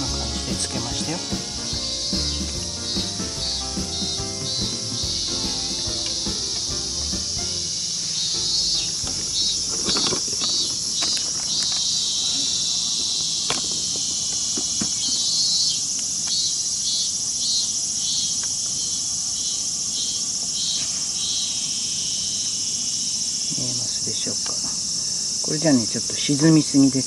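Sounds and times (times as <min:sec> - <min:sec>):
high-pitched insect chorus: 0:00.0 - 0:27.0
pulsing insect call: 0:00.0 - 0:27.0.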